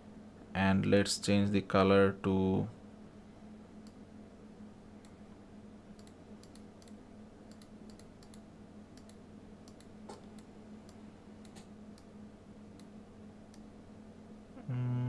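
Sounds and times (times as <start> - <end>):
steady low hum: 0.0 - 15.0
computer mouse clicks: 5.9 - 12.1.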